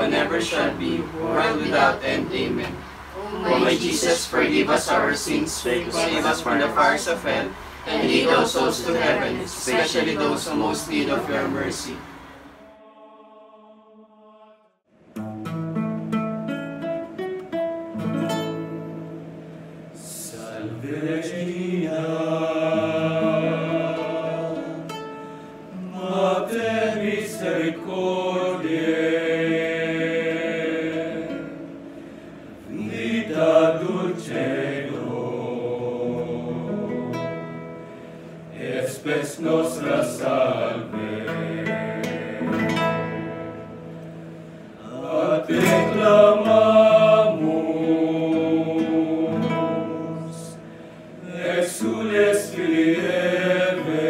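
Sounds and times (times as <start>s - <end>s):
men singing together: 0.0s - 12.1s, 20.0s - 24.9s, 25.8s - 31.6s, 32.6s - 36.9s, 38.6s - 42.8s, 44.8s - 50.6s, 51.2s - 54.0s
strummed acoustic guitar: 15.1s - 20.0s, 22.8s - 26.0s, 36.6s - 38.6s, 40.9s - 51.0s.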